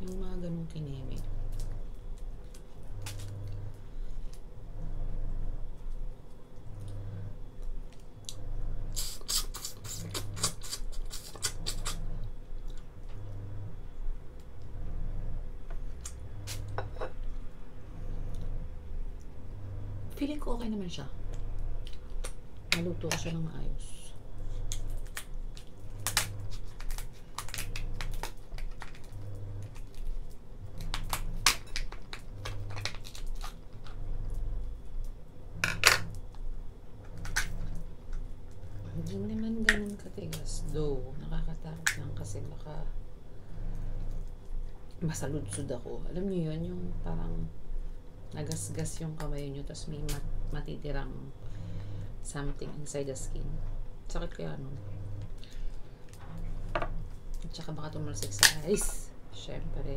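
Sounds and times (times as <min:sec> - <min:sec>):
crackly lobster shell eating: 0:09.0 - 0:12.8, 0:24.6 - 0:34.0.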